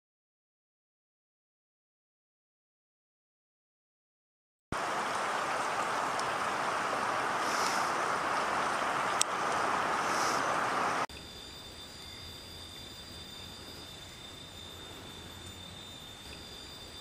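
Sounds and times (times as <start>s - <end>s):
steady rushing noise: 4.8s - 11.1s
faint hiss: 4.8s - 17.0s.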